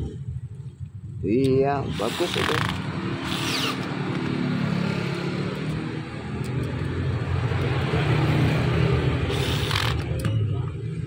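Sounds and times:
low mechanical rumble: 0.0 - 4.3, 8.9 - 11.0.

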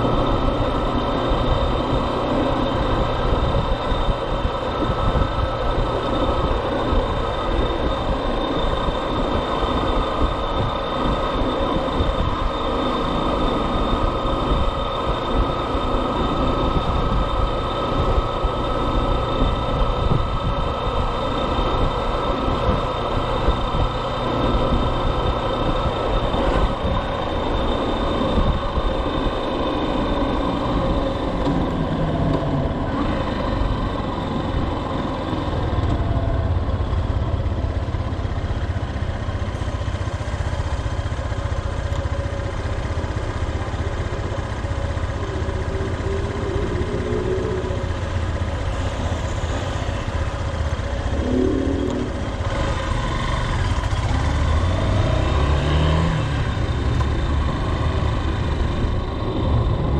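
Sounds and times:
motorcycle engine running: 0.0 - 59.9
road noise: 0.0 - 59.9
traffic noise: 0.0 - 59.9.

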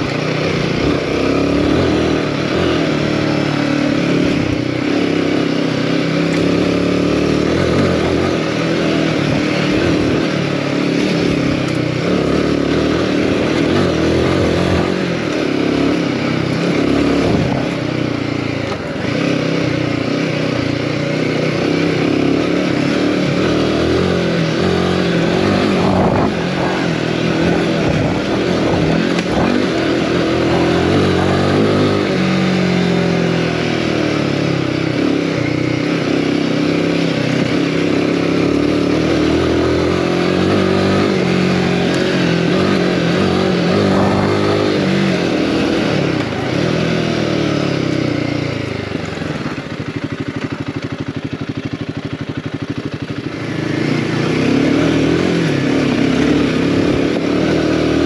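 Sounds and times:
motorcycle engine revving: 0.0 - 58.0
steady rushing noise: 23.5 - 34.0, 39.3 - 47.2.

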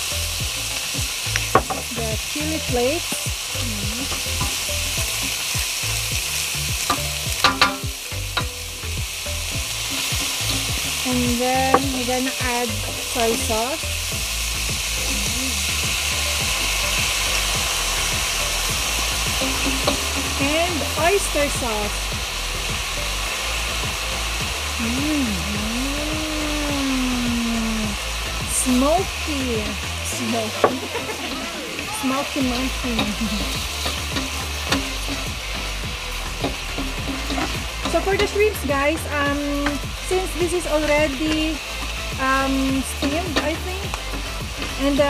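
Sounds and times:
food sizzling in a wok: 0.0 - 45.0
person humming: 1.9 - 4.4, 15.0 - 16.2, 24.8 - 33.7.

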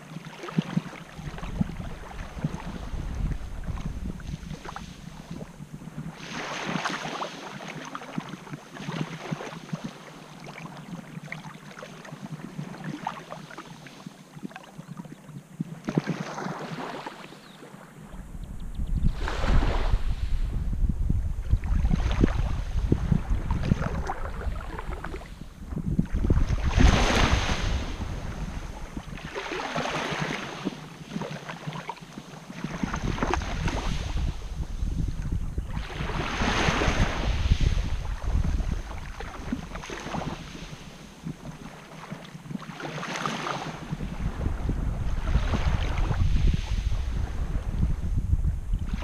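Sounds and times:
wind buffeting microphone: 0.8 - 6.9, 17.4 - 30.8, 32.6 - 41.8, 43.6 - 49.0.

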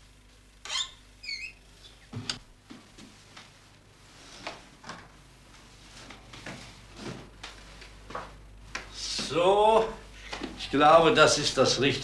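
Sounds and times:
short high squeak: 0.6 - 1.6.

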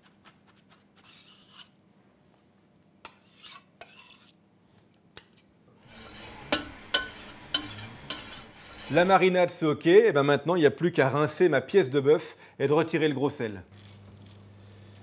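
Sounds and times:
spoon stirring liquid: 5.8 - 9.1.

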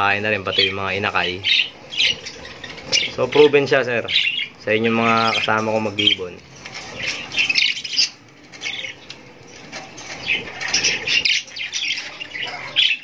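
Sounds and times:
budgerigars chirping: 0.0 - 13.0
wings fluttering: 5.8 - 12.5.

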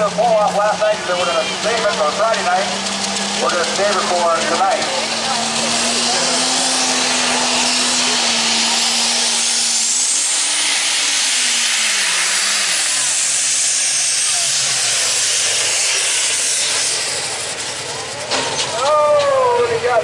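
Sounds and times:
diesel tractor engine roaring: 0.0 - 20.0.

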